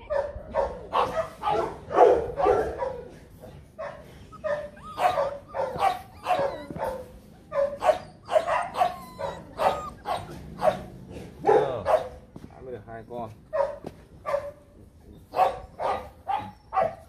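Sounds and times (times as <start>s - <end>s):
puppies yapping: 3.7s - 12.2s.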